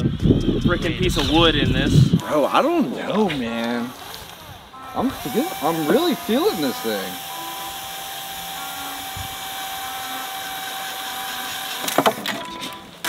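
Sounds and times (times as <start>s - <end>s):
cordless drill driving screw: 5.2s - 12.3s.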